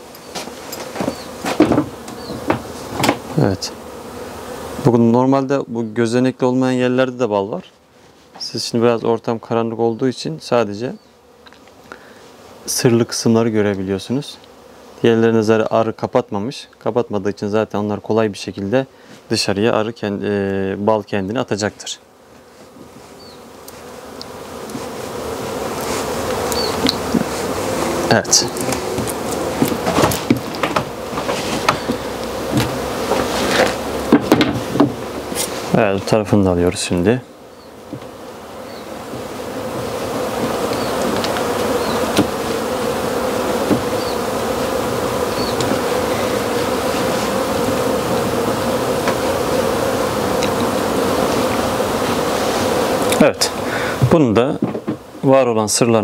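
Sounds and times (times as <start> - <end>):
bees buzzing: 0.0 - 56.0.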